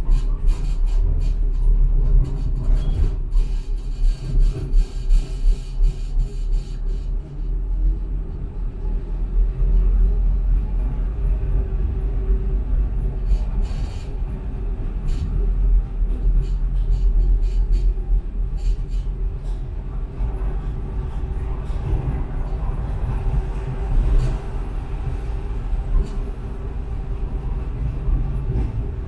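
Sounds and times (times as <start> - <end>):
tram wheels rumbling on rails: 0.0 - 29.0.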